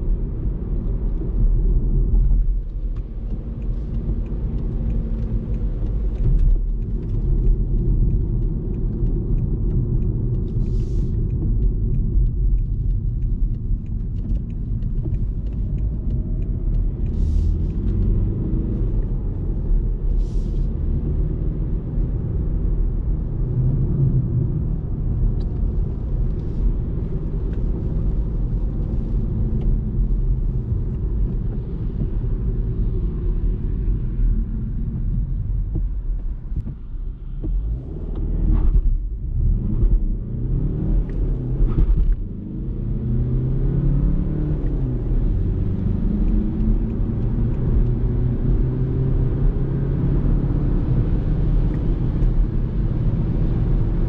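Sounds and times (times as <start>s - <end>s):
diesel engine rumble inside car: 0.0s - 54.0s.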